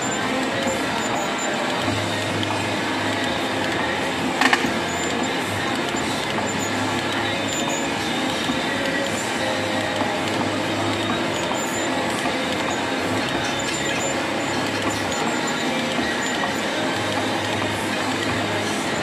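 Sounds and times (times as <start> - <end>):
milling machine running: 0.0 - 19.0
sharp metallic click: 4.4 - 5.1.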